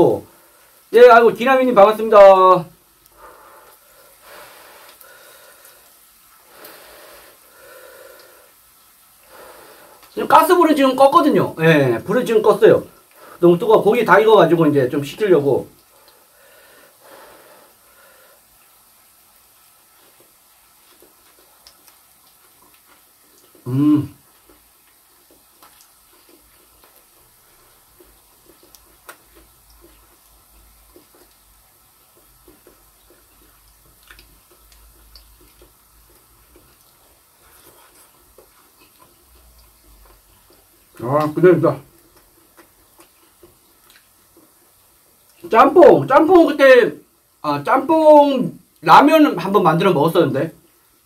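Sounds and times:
man breathing hard while chewing: 3.0 - 8.6, 9.2 - 10.1, 16.0 - 18.5
chewing: 17.8 - 45.4.

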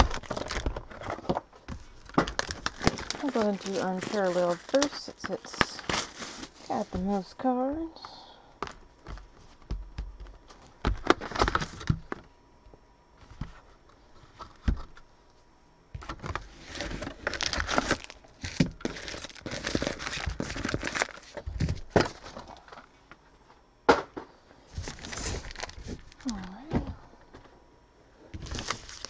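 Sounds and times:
foil packs crinkling: 0.0 - 8.1, 10.5 - 12.2, 16.0 - 22.9, 24.7 - 26.6, 28.4 - 29.0.

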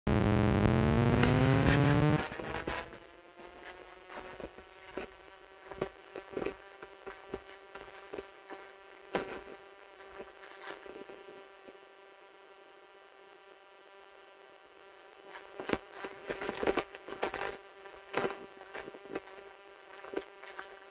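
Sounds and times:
faint steady hum: 0.0 - 20.9
rising synthesized tone: 0.1 - 2.8
footsteps on dry leaves and stones: 3.4 - 11.0, 15.4 - 20.9.

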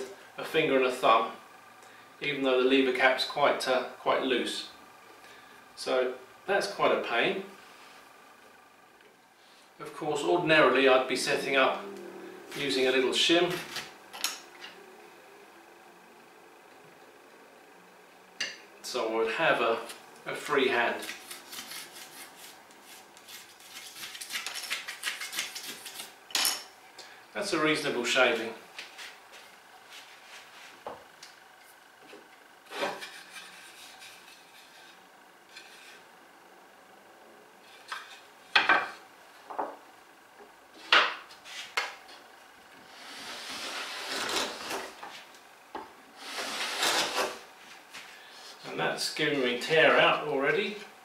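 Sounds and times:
hand plane hissing cutting stroke: 42.8 - 45.2, 46.1 - 47.4.

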